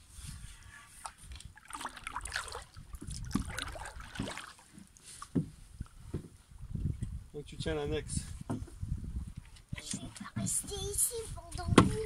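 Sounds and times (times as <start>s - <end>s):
wind on microphone: 0.0s - 4.3s, 5.6s - 12.0s
water lapping against hull: 0.0s - 7.5s.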